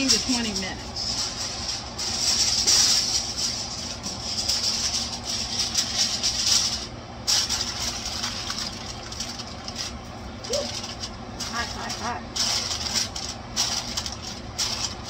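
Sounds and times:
aluminium foil crinkling: 0:00.0 - 0:15.0
kitchen fan running: 0:00.0 - 0:15.0.

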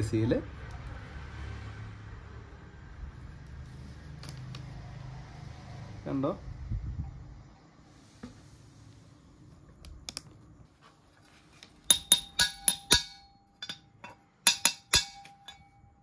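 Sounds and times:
sharp metallic taps: 0:11.8 - 0:15.8.

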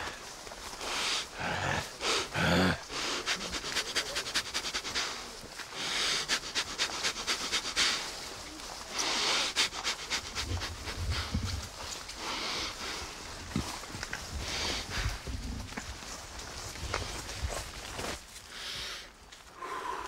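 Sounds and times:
man breathing sharply through nose: 0:00.0 - 0:08.2, 0:08.8 - 0:15.3, 0:18.4 - 0:20.0
deep breaths: 0:00.0 - 0:15.8, 0:18.4 - 0:20.0.

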